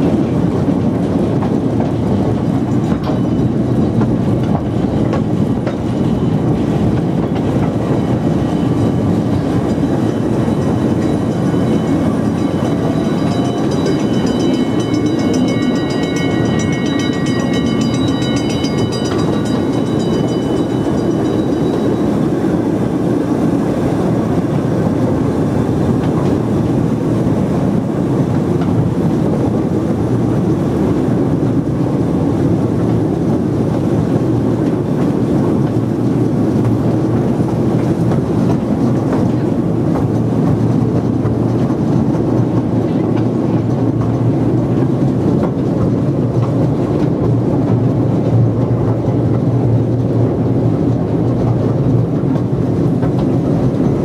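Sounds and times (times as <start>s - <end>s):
train wheels clattering on rails: 0.0s - 54.0s
high ringing tone: 8.0s - 23.2s.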